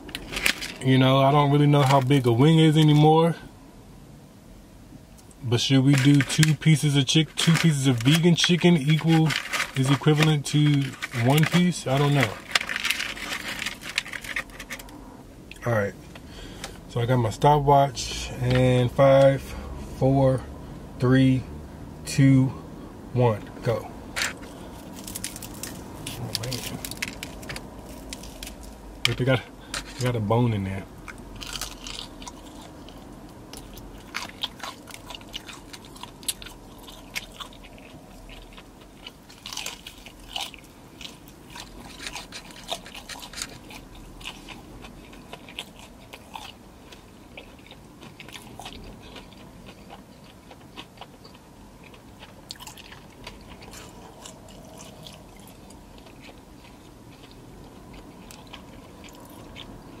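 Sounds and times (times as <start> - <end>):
crunchy chewing: 5.9 - 15.6, 23.7 - 30.2, 31.0 - 60.0.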